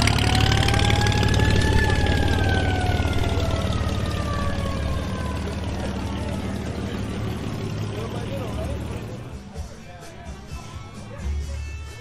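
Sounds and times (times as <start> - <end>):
engine idling: 0.0 - 12.0
high siren-like tone: 0.1 - 7.3.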